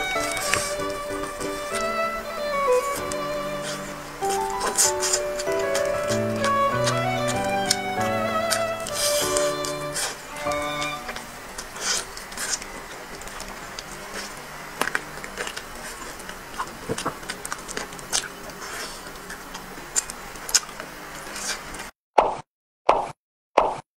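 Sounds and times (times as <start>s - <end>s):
chewing meat: 13.3s - 21.6s.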